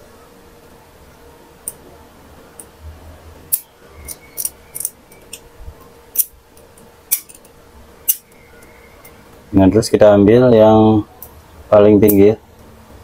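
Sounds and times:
sharp metallic clicks: 0:08.1 - 0:09.2.

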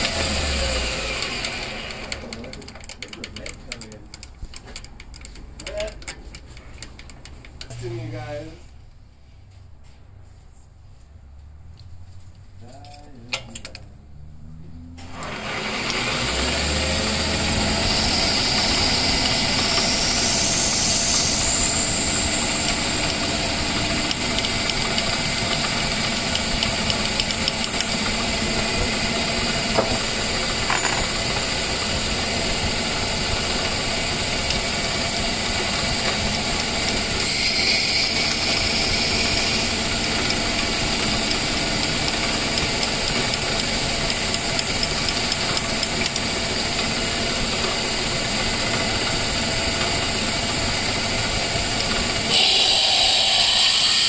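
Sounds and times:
small lathe running: 0:00.0 - 0:08.2, 0:15.0 - 0:54.0
drill bit cutting hiss: 0:15.0 - 0:30.2, 0:33.6 - 0:46.8, 0:51.1 - 0:54.0.

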